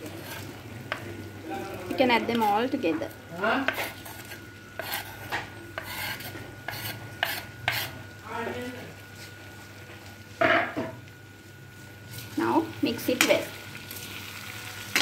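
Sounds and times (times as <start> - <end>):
sizzling in pan: 0.0 - 15.0
metal spoon scraping wooden board: 3.7 - 8.0.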